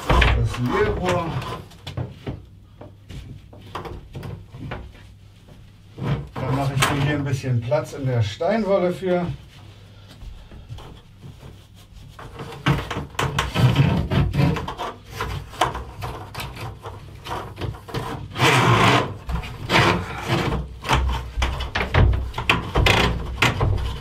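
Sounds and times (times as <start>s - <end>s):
conduit scraping against board: 0.0s - 2.0s, 11.4s - 24.0s.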